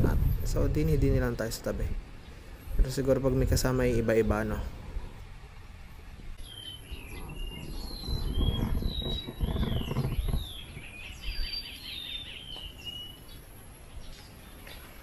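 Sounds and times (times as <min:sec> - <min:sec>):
low rumbling noise: 0:00.0 - 0:11.5
birds singing: 0:06.1 - 0:15.0.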